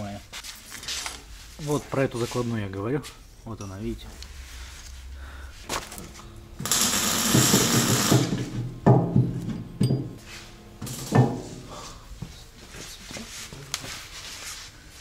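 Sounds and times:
metal tools clanking: 9.4 - 10.2.

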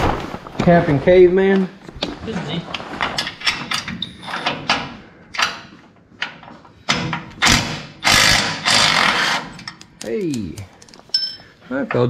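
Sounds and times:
hand tools clinking on metal: 9.6 - 11.5.

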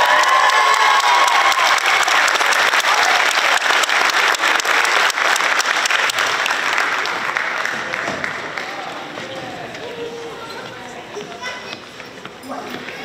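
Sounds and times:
crowd applauding: 0.0 - 9.2.

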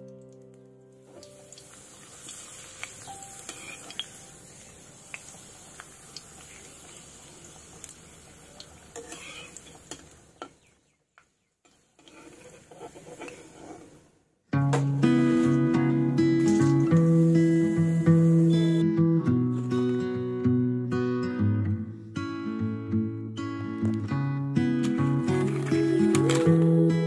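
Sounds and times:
light sizzle of frying in oil: 0.0 - 10.7, 11.6 - 14.0
spatula clicking and scraping pan: 3.4 - 4.1, 8.9 - 10.2, 11.7 - 13.9.

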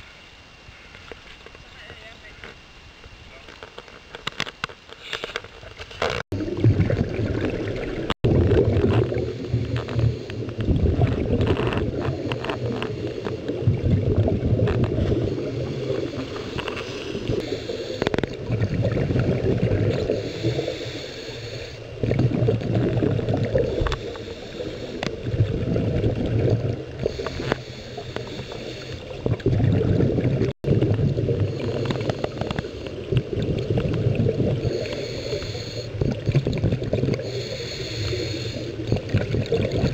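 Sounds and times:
gurgling exhaled bubbles: 6.0 - 39.9
regulator inhale hiss: 12.0 - 13.7, 15.2 - 18.3, 19.9 - 22.0, 23.6 - 25.2, 27.0 - 29.2, 31.4 - 33.1, 34.6 - 36.0, 37.1 - 38.9.

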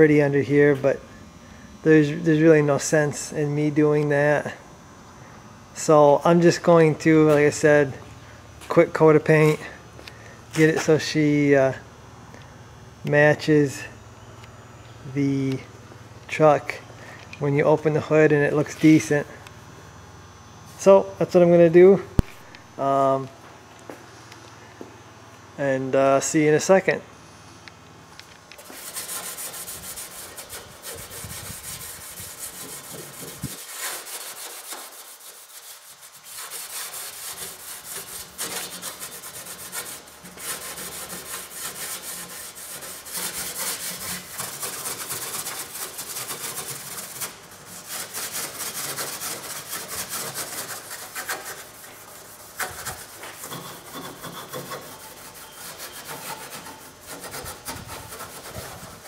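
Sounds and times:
abrasive rubbing on steel: 28.6 - 59.0.

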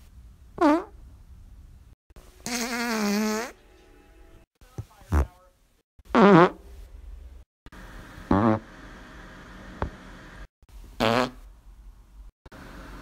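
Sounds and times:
person farting: 0.6 - 0.9, 2.4 - 3.6, 6.1 - 6.6, 8.3 - 8.7, 11.0 - 11.4.

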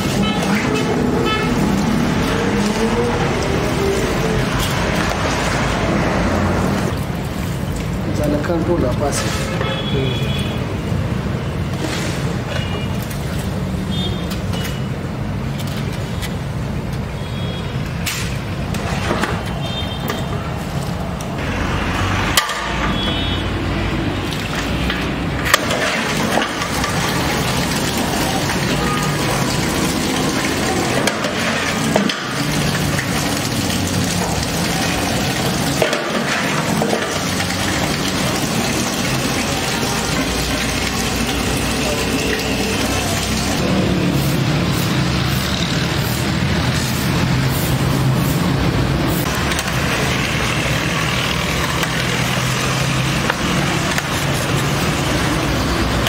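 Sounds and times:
street traffic rumble: 0.0 - 56.0
tap water running into a pot: 24.0 - 43.6, 49.3 - 56.0.

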